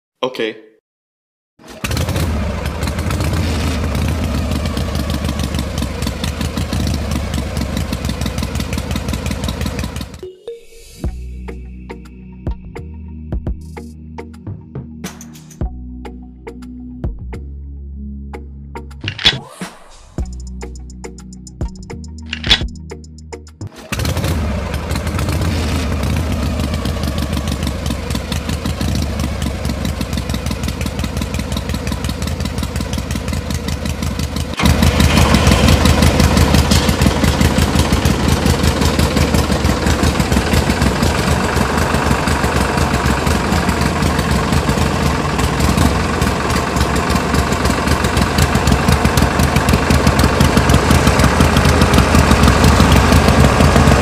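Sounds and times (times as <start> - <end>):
power tiller engine chugging: 1.6 - 10.2, 23.8 - 54.0.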